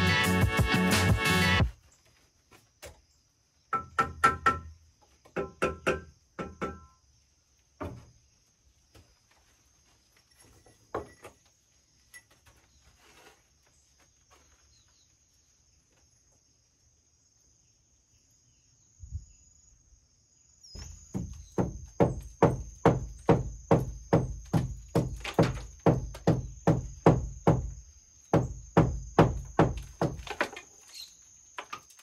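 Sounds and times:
high insect drone: 0:13.7 - 0:32.0.

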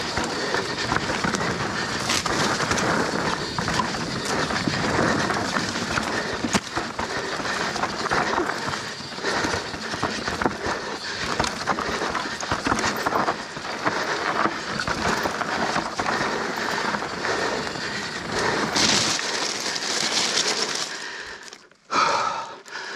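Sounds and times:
bike clattering: 0:00.0 - 0:21.2
bike tyres rolling over dirt: 0:00.0 - 0:22.0
tyres hissing on gravel: 0:15.1 - 0:21.5.

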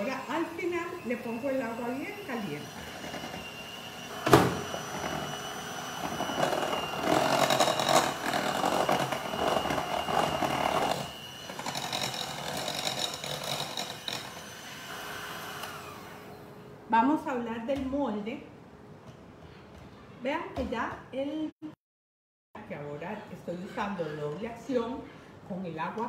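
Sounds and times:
electric hand mixer whirring: 0:00.0 - 0:16.4.

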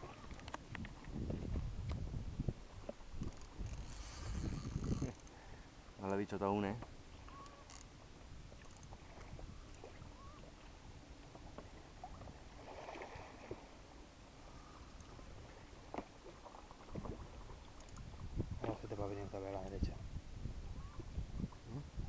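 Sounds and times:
water lapping against a boat: 0:00.0 - 0:06.0, 0:06.6 - 0:19.4
faint clicks and knocks: 0:02.8 - 0:05.4.

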